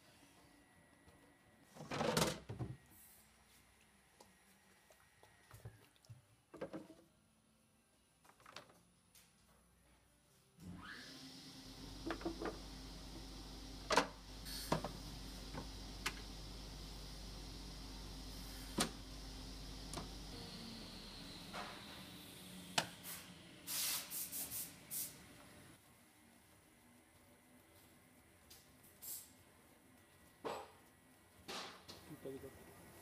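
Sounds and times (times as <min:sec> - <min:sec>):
hollow plastic knocks and clatter: 0:06.5 - 0:07.1.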